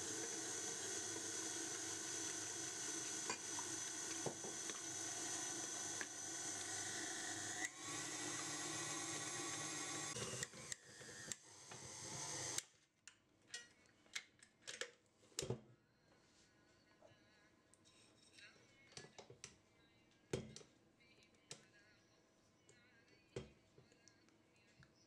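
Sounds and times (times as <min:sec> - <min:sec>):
stand mixer motor whining: 0:00.0 - 0:12.6.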